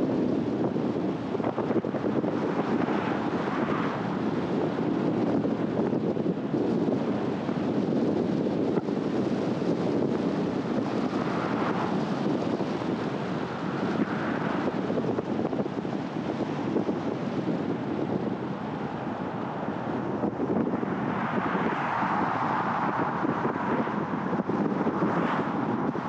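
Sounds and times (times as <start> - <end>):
tyre and wind noise: 0.0 - 26.0
car driving: 8.4 - 26.0.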